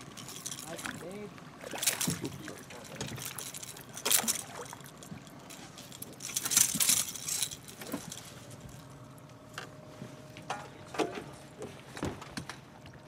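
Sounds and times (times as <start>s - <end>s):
water splashing: 0.3s - 5.2s.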